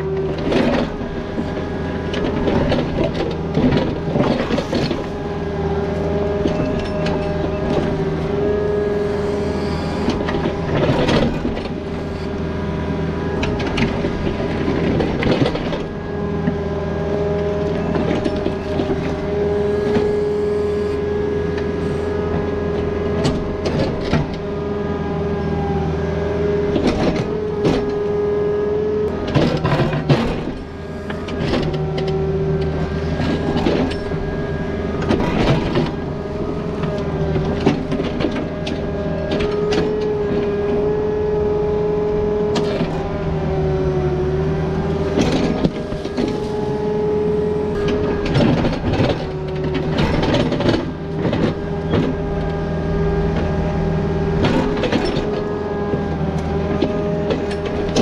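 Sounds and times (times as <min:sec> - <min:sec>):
diesel engine running: 0:00.0 - 0:58.0
excavator bucket clanking on rock: 0:35.0 - 0:40.1, 0:47.8 - 0:52.5.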